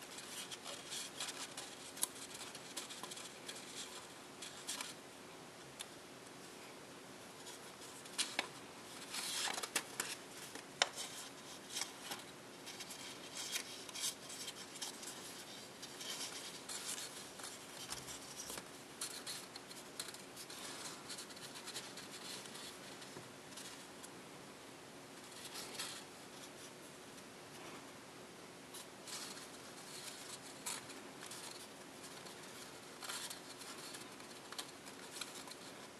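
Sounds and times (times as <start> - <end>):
paper rustling and crinkling: 0.0 - 5.0, 7.4 - 24.0, 28.7 - 35.9.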